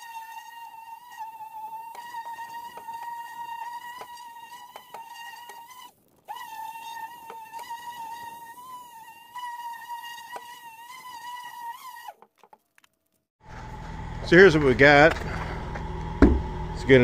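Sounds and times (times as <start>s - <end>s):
sanding pad ticks: 0.0s - 13.2s
electric polisher whining: 13.4s - 17.0s.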